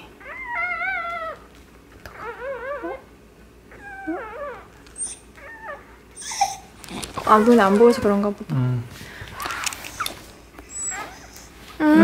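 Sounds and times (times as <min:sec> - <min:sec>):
puppy squealing: 0:00.2 - 0:01.5, 0:02.1 - 0:03.1, 0:03.7 - 0:08.2, 0:09.4 - 0:11.6.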